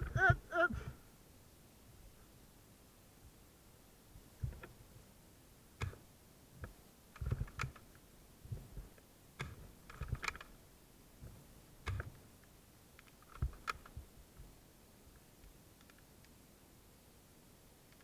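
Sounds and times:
sharp clicks and light knocks: 4.4 - 4.8, 5.8 - 6.0, 6.6 - 8.0, 8.6 - 10.6, 11.2 - 14.5, 15.1 - 16.4.

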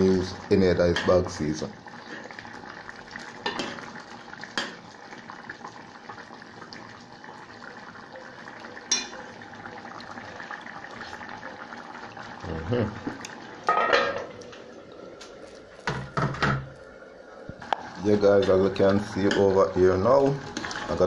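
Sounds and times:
pot simmering: 0.0 - 21.0
utensil clinking on pot: 8.9 - 9.2.

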